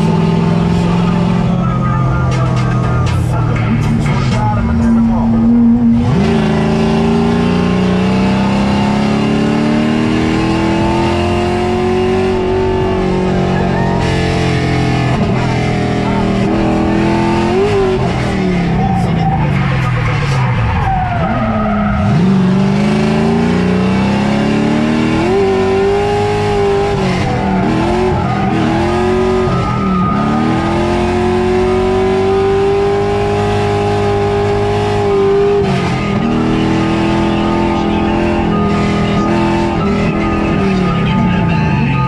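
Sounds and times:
car engine revving: 0.0s - 42.0s
tyres squealing: 10.8s - 23.5s, 25.0s - 42.0s.

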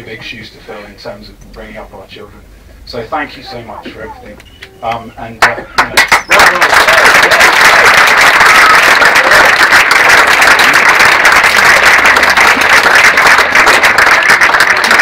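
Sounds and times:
crowd applauding: 5.4s - 15.0s.

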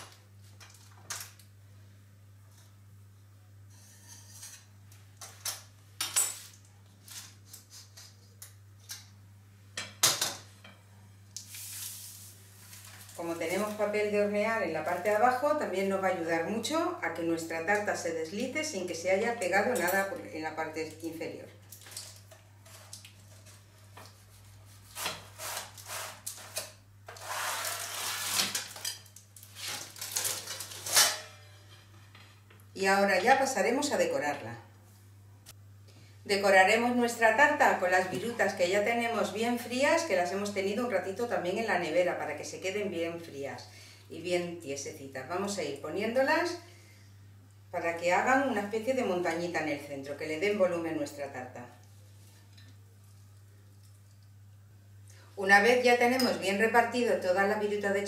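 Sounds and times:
knife scraping metal cake pan: 3.7s - 4.6s
spatula scraping baking paper: 22.6s - 28.8s.

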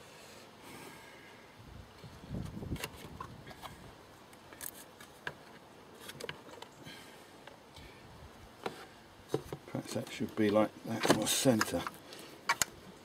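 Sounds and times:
air filter clicking and scraping: 8.6s - 12.8s.

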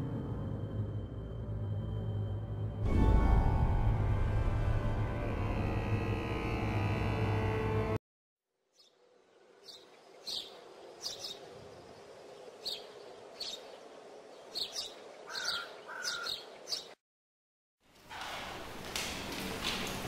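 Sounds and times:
birds chirping: 8.7s - 17.0s.

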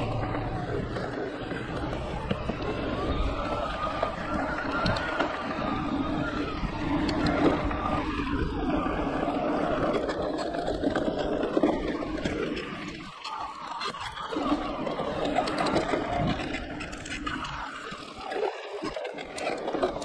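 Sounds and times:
electric motor hum: 0.0s - 9.8s
tyre rumble: 0.0s - 13.1s
bike rattles and clicks: 0.0s - 20.0s.

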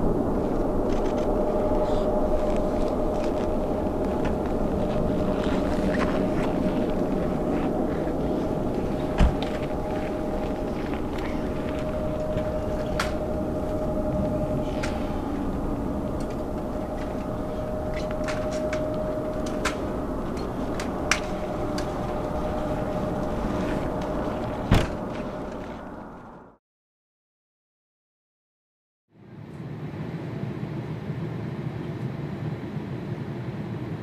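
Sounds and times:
steady tone: 0.0s - 26.1s
distant jet engine rumble: 0.0s - 26.6s, 29.2s - 34.0s.

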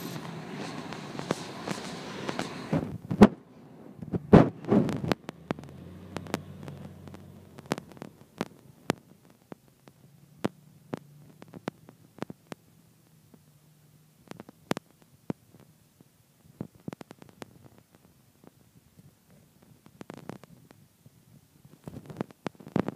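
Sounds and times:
loud rush: 0.0s - 8.7s
bus engine droning: 0.0s - 14.7s
sharp clicks and taps: 4.0s - 12.7s.

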